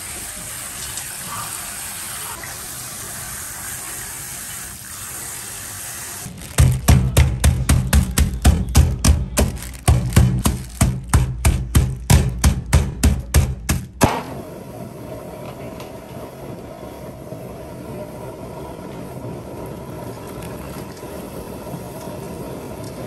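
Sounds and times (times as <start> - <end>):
music with pounding beat: 6.6 - 14.0.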